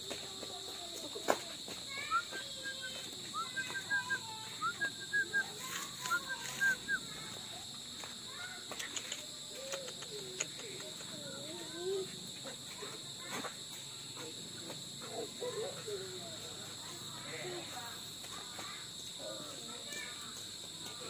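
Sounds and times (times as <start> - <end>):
crickets trilling: 0.0 - 21.0
animal chirping: 3.4 - 7.0.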